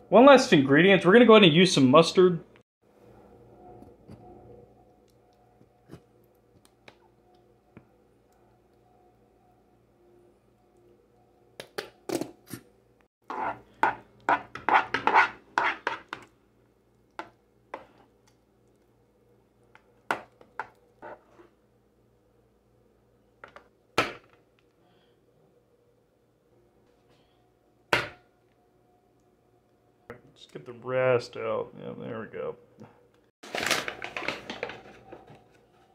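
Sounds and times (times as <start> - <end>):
metal spoon stirring batter in a pan: 13.2 - 16.3.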